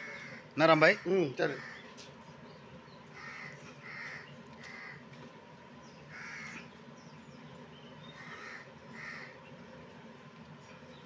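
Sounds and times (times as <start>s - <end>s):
crow cawing: 0.0s - 2.0s, 3.1s - 5.0s, 6.1s - 6.7s, 8.2s - 9.4s.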